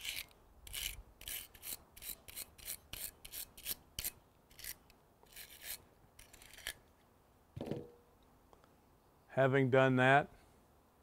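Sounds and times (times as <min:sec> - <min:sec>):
wire brush scrubbing steel: 0:00.0 - 0:06.8.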